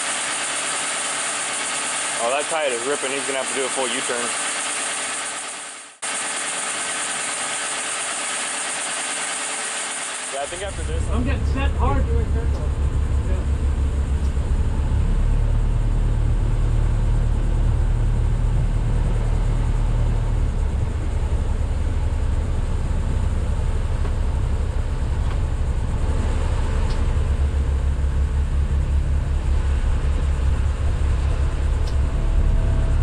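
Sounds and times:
boat engine rumbling: 0:10.4 - 0:33.0.

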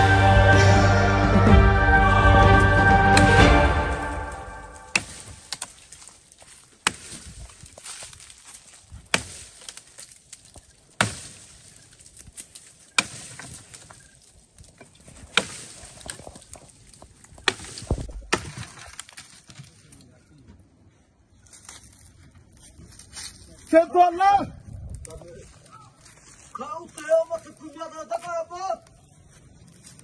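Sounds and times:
axe chopping tree trunk: 0:04.9 - 0:05.9, 0:06.8 - 0:07.5, 0:09.1 - 0:10.0, 0:11.0 - 0:11.6, 0:13.0 - 0:13.8, 0:15.2 - 0:16.3, 0:17.4 - 0:19.2.

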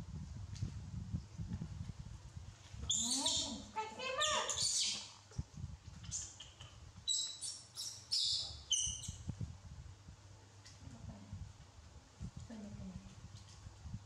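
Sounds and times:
baby monkey squeaking and chirping: 0:02.9 - 0:05.1, 0:06.1 - 0:09.2.

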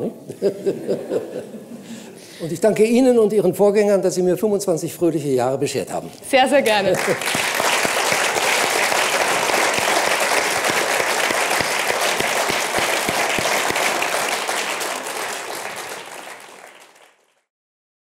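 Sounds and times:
audience applauding: 0:06.7 - 0:17.5.

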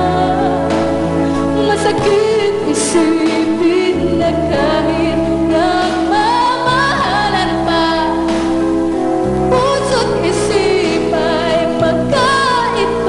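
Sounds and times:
instrumental accompaniment: 0:00.0 - 0:13.0
woman singing a love ballad: 0:00.0 - 0:13.0.

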